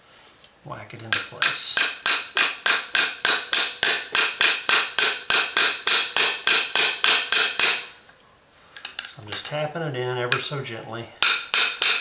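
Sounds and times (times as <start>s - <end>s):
hammer tapping metal rod: 1.1s - 8.0s, 10.3s - 10.6s, 11.2s - 12.0s.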